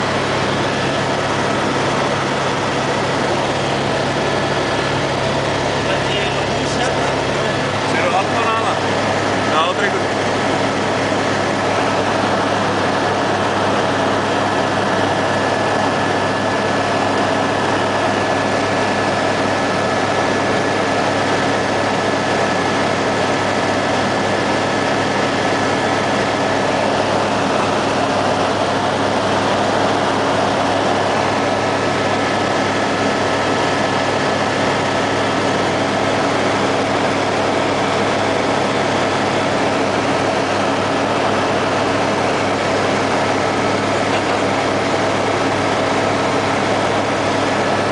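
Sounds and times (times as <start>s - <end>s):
helicopter engine and rotor drone: 0.0s - 47.9s
thin steady whine: 0.0s - 47.9s.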